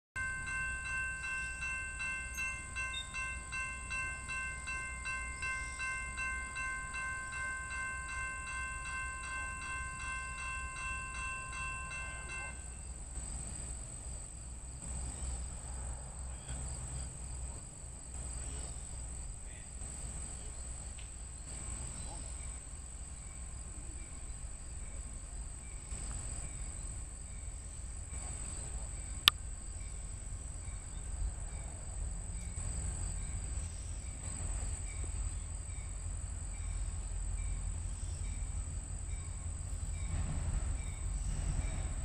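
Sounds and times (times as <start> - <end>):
railroad crossing bell ringing: 0.2 - 13.8, 32.8 - 42.0
high drone of insects: 0.2 - 42.0
low rumble of train: 0.2 - 42.0.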